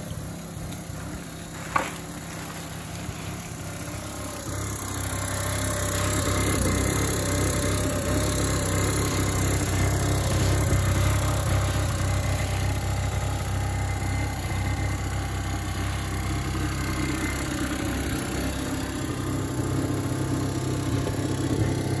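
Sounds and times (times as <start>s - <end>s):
two-stroke engine idling: 0.0s - 22.0s.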